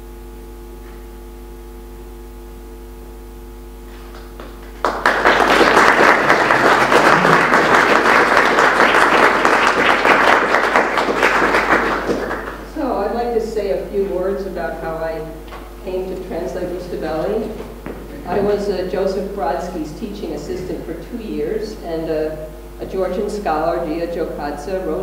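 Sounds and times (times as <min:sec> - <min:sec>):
steady low hum: 0:00.0 - 0:25.0
audience applauding: 0:04.1 - 0:12.7.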